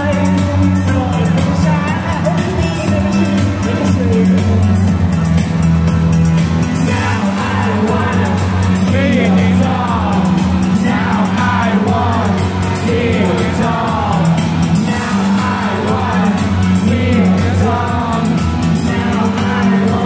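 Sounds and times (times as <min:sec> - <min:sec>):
rock band playing: 0:00.0 - 0:20.0.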